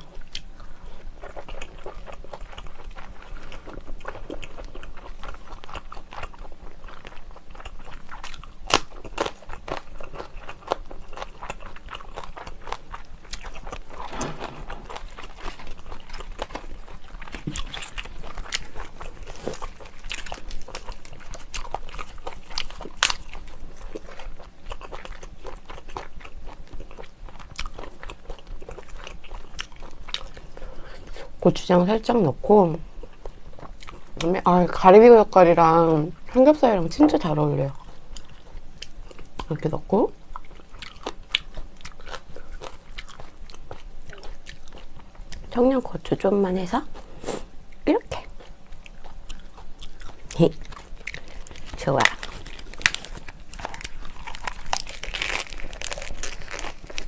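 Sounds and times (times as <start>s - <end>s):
person chewing food: 0.0s - 31.4s, 32.9s - 34.3s, 37.1s - 45.5s, 46.9s - 57.0s
sharp crunches: 13.5s - 16.7s, 51.0s - 57.0s.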